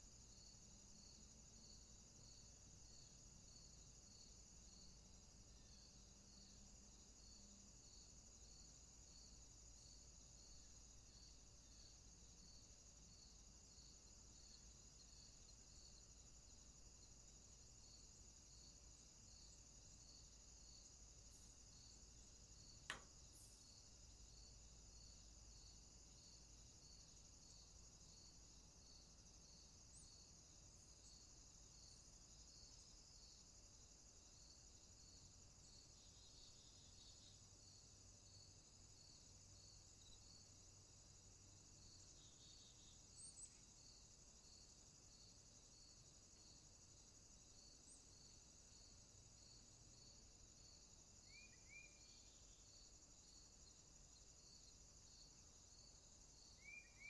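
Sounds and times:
faint insect chorus: 0:00.0 - 0:57.0
sharp click: 0:22.8 - 0:23.2.

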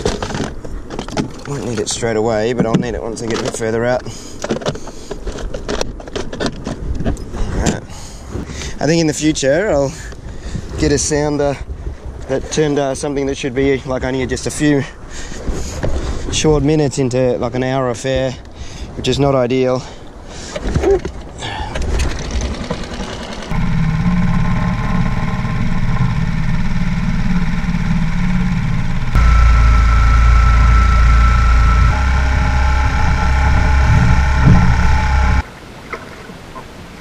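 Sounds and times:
outboard motor running: 0:21.4 - 0:35.4.

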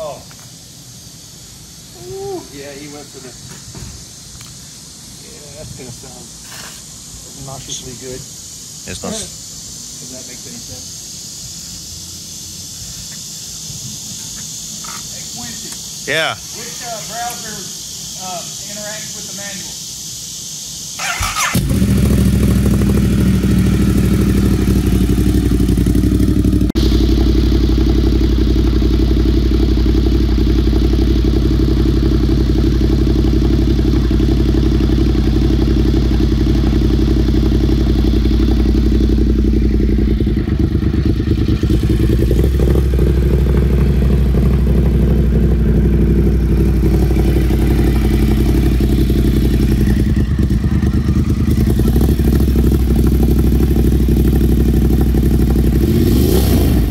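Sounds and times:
motorcycle engine idling: 0:21.0 - 0:56.9.

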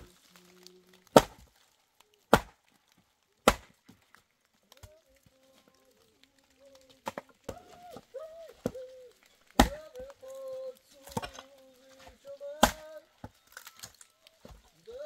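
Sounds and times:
sharp chopping strikes: 0:01.1 - 0:01.5, 0:02.3 - 0:02.6, 0:03.4 - 0:03.8, 0:09.6 - 0:09.8, 0:12.6 - 0:12.9.

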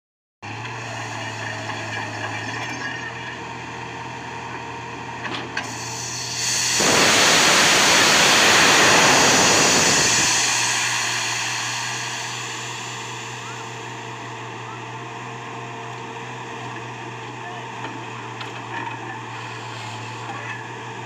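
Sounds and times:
diesel engine humming: 0:00.4 - 0:21.0
compressed air rushing hiss: 0:05.6 - 0:14.2.

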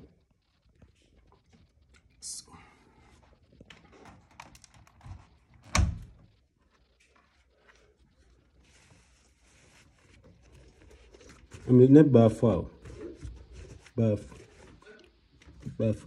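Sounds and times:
quiet clicks and handling: 0:03.2 - 0:05.7.

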